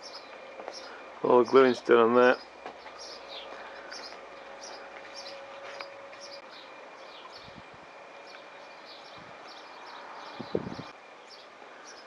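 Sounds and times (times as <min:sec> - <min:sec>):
small bird chirping: 0:00.0 - 0:01.0, 0:02.4 - 0:07.6.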